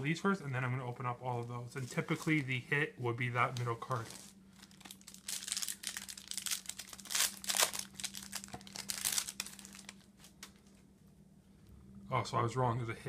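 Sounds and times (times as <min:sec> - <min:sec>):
foil wrapper crinkling: 0:03.4 - 0:10.8.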